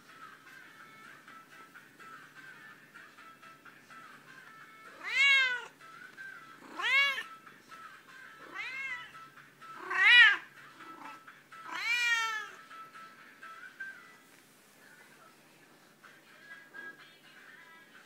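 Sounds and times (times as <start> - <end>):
cat meowing loudly: 5.0 - 5.7, 6.7 - 7.3, 8.5 - 9.1, 9.8 - 10.4, 11.7 - 12.6.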